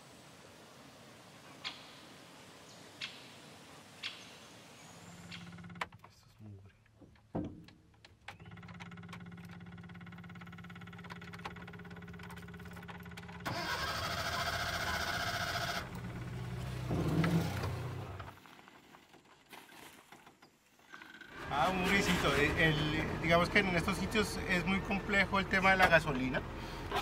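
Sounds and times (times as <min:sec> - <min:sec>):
cabin and road noise: 0:00.0 - 0:20.4, 0:21.2 - 0:27.0
van engine running: 0:08.4 - 0:18.8, 0:21.3 - 0:27.0.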